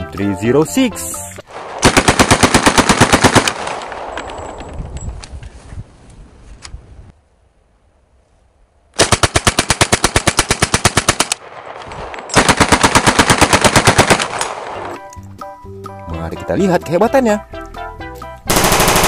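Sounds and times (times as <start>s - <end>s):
submachine gun firing: 1.5s - 4.5s, 9.0s - 15.0s, 18.5s - 19.0s.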